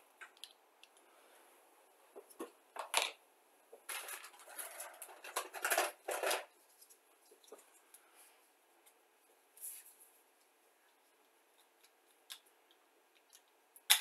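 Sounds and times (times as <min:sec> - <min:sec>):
plastic parts clicking and tapping: 0:03.8 - 0:06.5
plastic parts scraping and rustling: 0:03.8 - 0:07.8.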